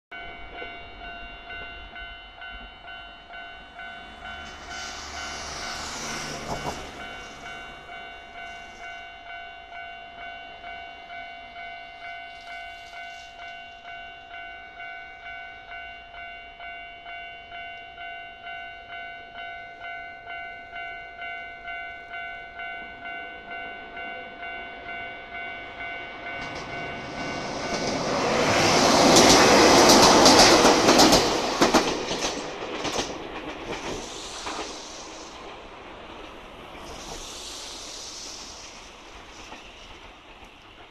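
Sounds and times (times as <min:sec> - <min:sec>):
level crossing warning bell: 0:00.1 - 0:31.8
train rumbling over crossing: 0:00.1 - 0:40.9
car passing: 0:03.6 - 0:08.9
wheels clacking over rail joints: 0:26.1 - 0:37.3.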